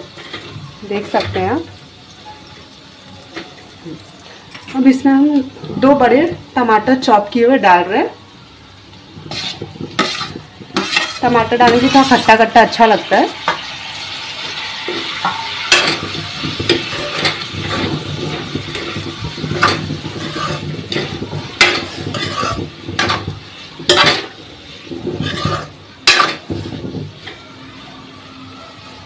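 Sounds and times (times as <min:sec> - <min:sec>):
metal spatula scraping in a pan: 0:00.0 - 0:02.8, 0:09.0 - 0:27.6
spatula clanking on metal pan: 0:09.2 - 0:12.3, 0:14.9 - 0:27.4.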